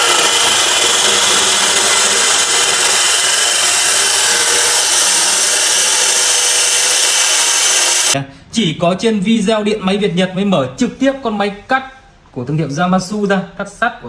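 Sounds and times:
cut-off saw screeching on metal: 0.0s - 8.2s.

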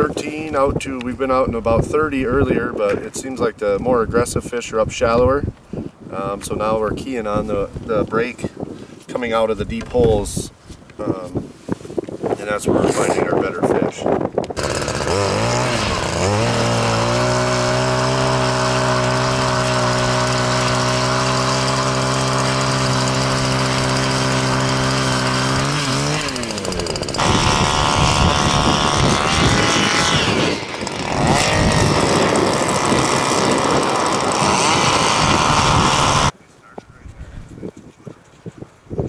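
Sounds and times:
ice auger engine revving: 14.6s - 36.4s
second auger engine running: 14.6s - 36.4s.

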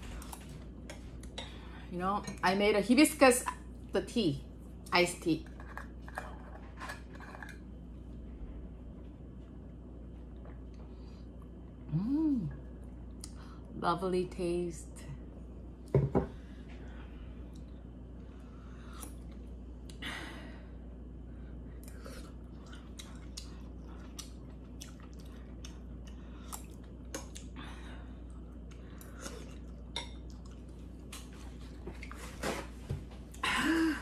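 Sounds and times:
person chewing: 21.8s - 27.6s, 28.2s - 32.1s.

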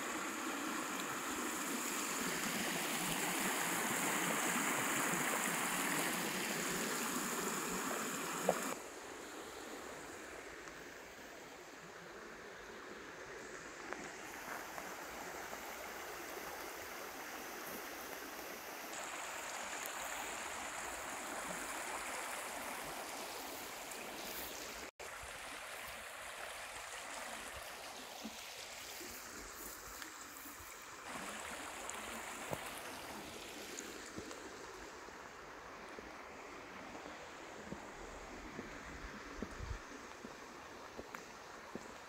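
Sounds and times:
river running over gravel: 0.0s - 42.0s.

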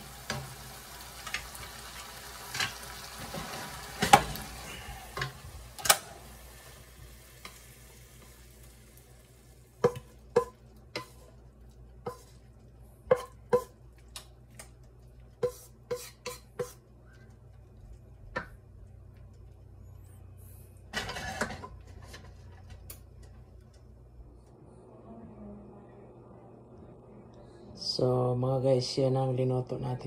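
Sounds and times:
faint sizzle: 0.0s - 23.7s
spatula knocking on frying pan: 9.8s - 11.1s, 13.1s - 13.8s.

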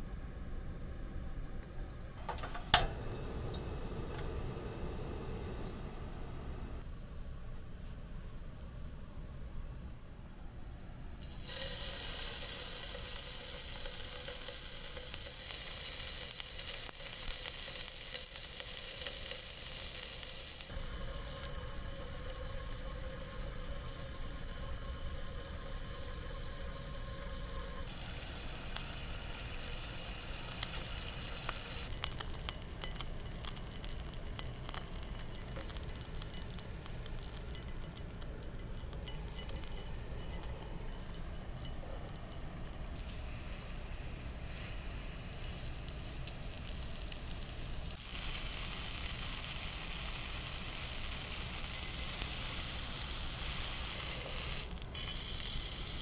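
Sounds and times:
food sizzling in a frying pan: 11.2s - 41.3s, 43.0s - 56.0s.

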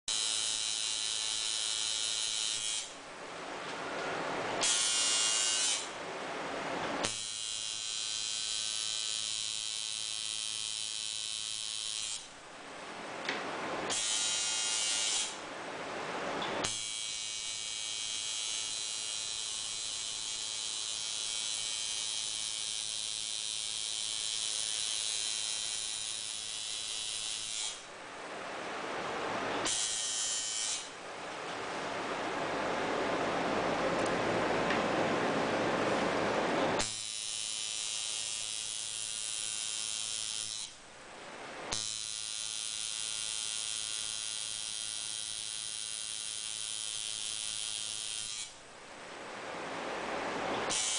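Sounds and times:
tattoo machine buzzing: 0.1s - 2.9s, 4.6s - 5.9s, 7.0s - 12.3s, 13.9s - 15.4s, 16.6s - 27.9s, 29.6s - 30.9s, 36.8s - 40.8s, 41.7s - 48.6s, 50.7s - 50.9s.

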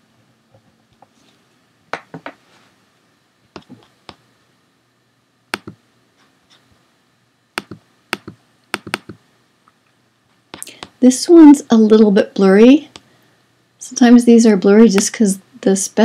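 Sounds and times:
computer mouse clicks: 5.5s - 5.8s, 7.6s - 9.2s.

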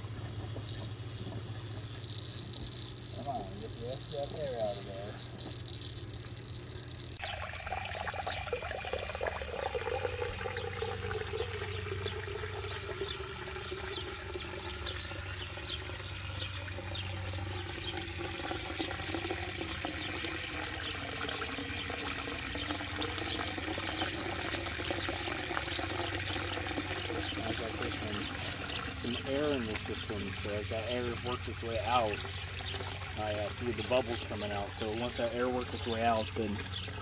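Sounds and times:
water splashing into a pond: 3.0s - 37.0s.

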